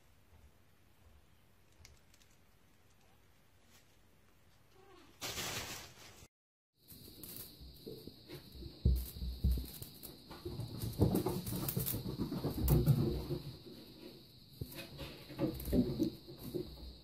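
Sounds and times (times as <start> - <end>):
faint high hiss: 6.8 - 16.9
kittens scuffling on a mat: 6.9 - 17.0.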